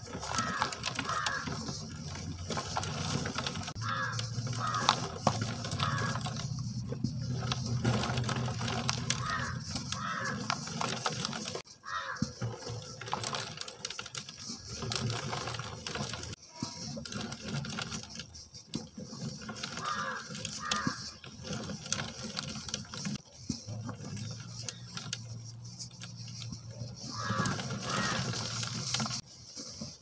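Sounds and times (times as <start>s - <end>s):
cement lumps crushed by hand: 0.0s - 23.2s.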